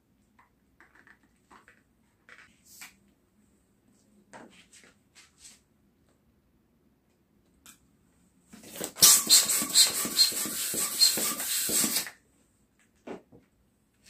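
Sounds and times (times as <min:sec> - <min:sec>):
balloon pump air rushing: 0:08.6 - 0:12.1.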